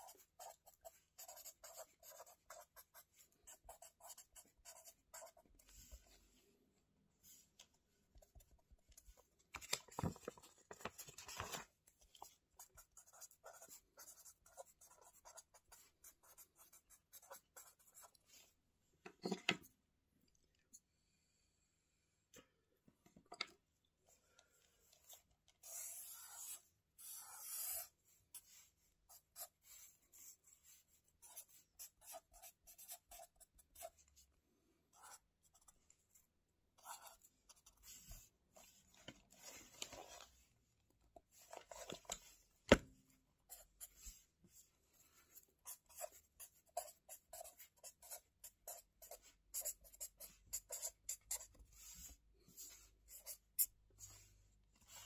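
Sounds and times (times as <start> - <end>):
pen scratching on paper: 0.0 - 5.5, 12.2 - 18.2, 25.6 - 34.0, 34.9 - 35.8, 36.8 - 38.7, 45.6 - 54.2.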